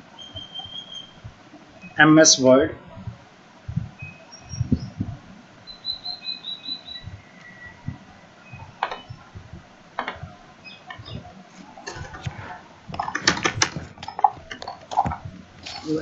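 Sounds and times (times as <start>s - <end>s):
faint high chirps: 0.0s - 2.1s, 3.9s - 5.0s, 5.6s - 9.5s
low thumps: 2.7s - 5.5s, 6.9s - 15.7s.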